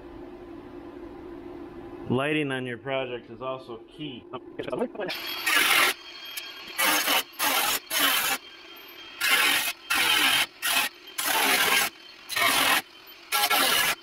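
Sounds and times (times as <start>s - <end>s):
welding arc crackling: 5.2s - 14.0s.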